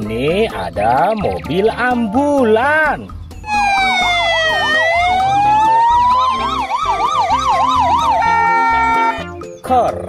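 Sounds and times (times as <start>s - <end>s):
ambulance siren warble and wail: 3.4s - 9.4s.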